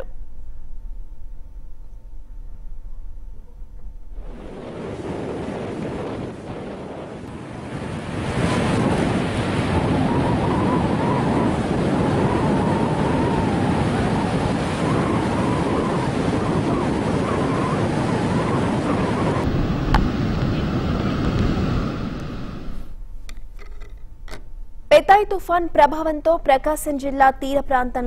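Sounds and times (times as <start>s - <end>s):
wind buffeting microphone: 3.9s - 22.9s
surf breaking on beach: 4.2s - 22.9s.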